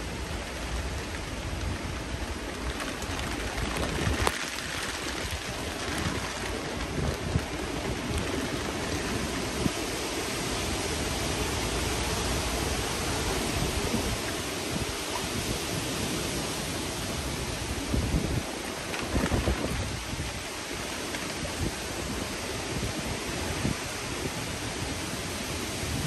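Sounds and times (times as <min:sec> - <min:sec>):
heavy rain pouring: 0:00.0 - 0:26.0
raindrops tapping: 0:00.2 - 0:09.1.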